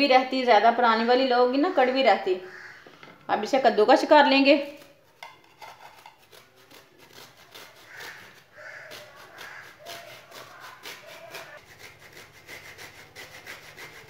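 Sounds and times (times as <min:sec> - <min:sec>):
coconut grating on metal grater: 0:04.6 - 0:14.0.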